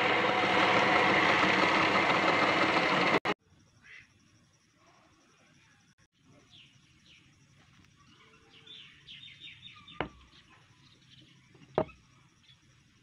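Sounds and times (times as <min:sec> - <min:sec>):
small birds chirping: 0:07.9 - 0:12.8.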